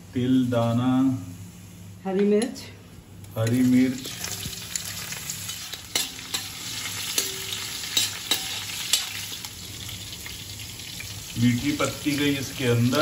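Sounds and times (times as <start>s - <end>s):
chillies sizzling in hot oil: 3.4s - 13.0s
spoon clinking on pan: 5.9s - 9.2s.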